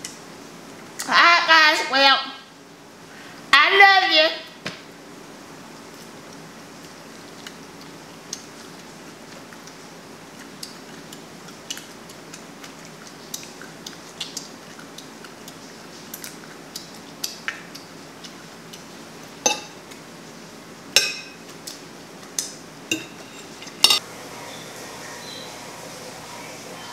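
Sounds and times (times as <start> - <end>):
cutlery clinking against a dish: 19.4 - 19.8, 21.0 - 21.5, 22.9 - 24.0.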